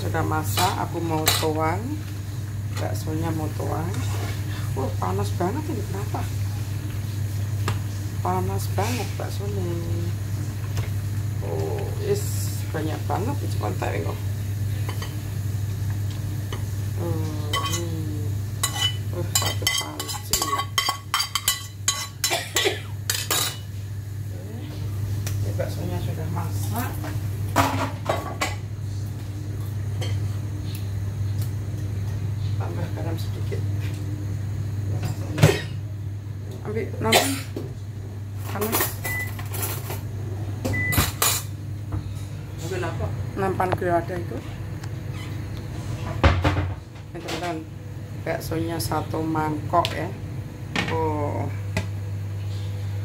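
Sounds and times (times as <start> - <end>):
steady low hum: 0.0 - 53.0
dishes and utensils clinking: 18.6 - 23.7.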